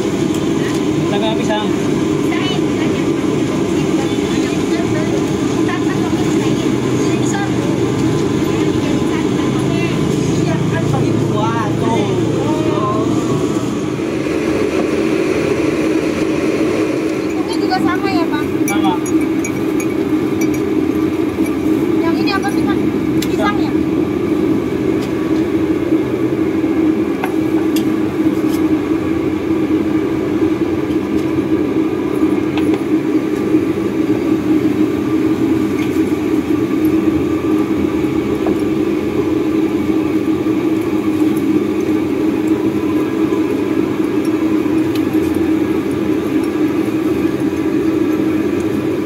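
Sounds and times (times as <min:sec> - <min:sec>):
low drone of street traffic: 0:00.0 - 0:49.0
spoon clinking against glass: 0:18.6 - 0:20.7.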